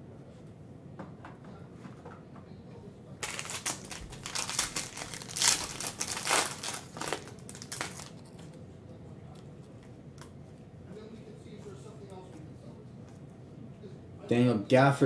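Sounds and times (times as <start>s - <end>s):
foil wrapper crinkling: 3.2s - 8.5s.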